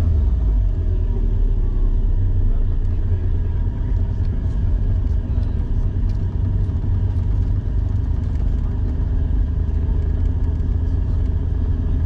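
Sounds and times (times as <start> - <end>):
car engine low drone: 0.0 - 12.0.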